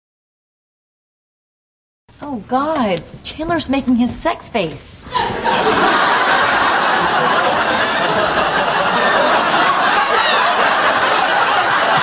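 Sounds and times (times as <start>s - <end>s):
studio audience laughing: 5.1s - 12.0s.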